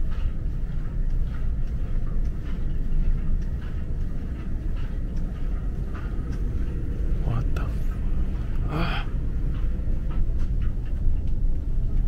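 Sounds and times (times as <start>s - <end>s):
footsteps walking: 0.0s - 12.0s.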